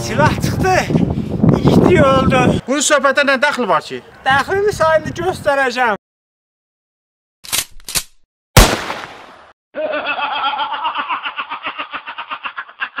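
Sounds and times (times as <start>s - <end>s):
fast pulsing laugh: 9.8s - 13.0s.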